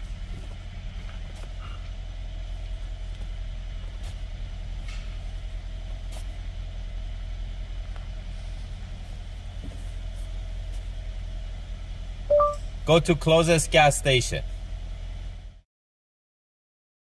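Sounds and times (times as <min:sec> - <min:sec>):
car engine idling: 0:00.0 - 0:15.6.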